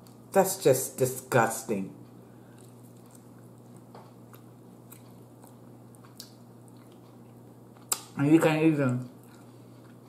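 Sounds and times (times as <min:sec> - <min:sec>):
steady low hum: 0:00.0 - 0:10.0
person chewing: 0:02.3 - 0:08.2, 0:09.2 - 0:10.0.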